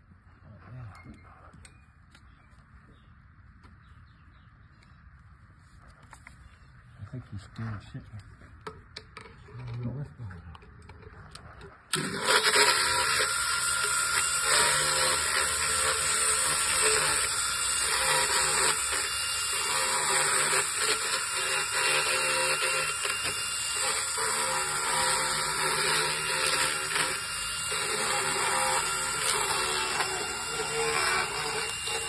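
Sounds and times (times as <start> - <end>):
dental float whirring rasp: 11.9 - 32.0.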